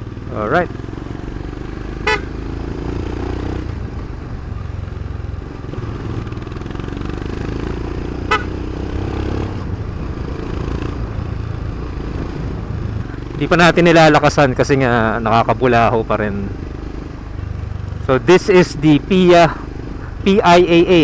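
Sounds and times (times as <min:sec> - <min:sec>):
motorcycle engine running: 0:00.0 - 0:21.0
horn beep: 0:02.0 - 0:02.4, 0:08.2 - 0:08.6.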